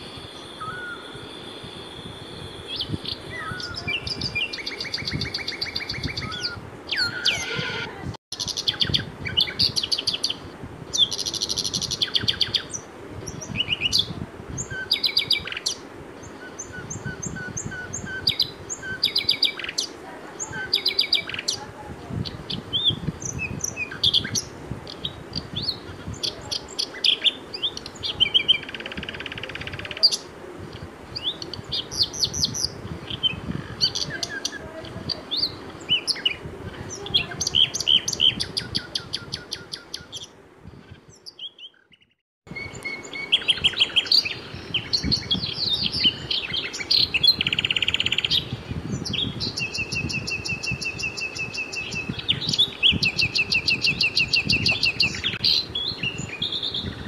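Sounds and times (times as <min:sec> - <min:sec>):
buzzing bird trills: 0:00.0 - 0:08.0
small birds chirping: 0:00.0 - 0:57.0.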